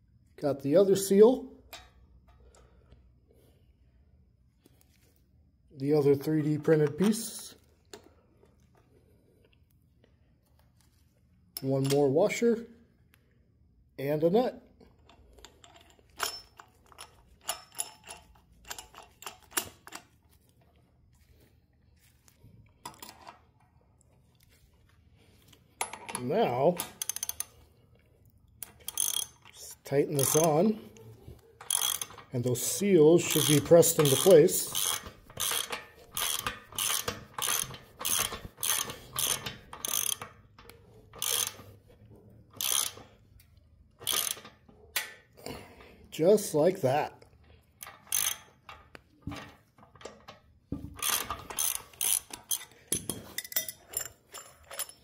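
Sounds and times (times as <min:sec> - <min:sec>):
metal nut clicking on bolt: 0:15.0 - 0:20.1, 0:25.8 - 0:27.5, 0:28.6 - 0:30.6, 0:31.6 - 0:41.6, 0:42.6 - 0:43.1, 0:44.0 - 0:45.2, 0:47.8 - 0:55.0.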